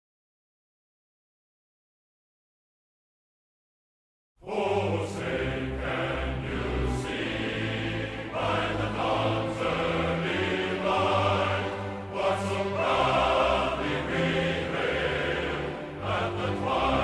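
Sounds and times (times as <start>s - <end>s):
choral music: 4.4s - 17.0s.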